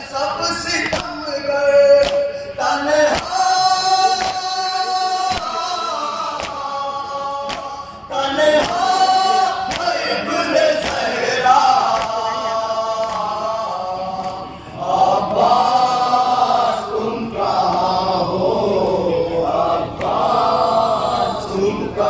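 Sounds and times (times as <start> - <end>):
men chanting together: 0.0 - 22.0.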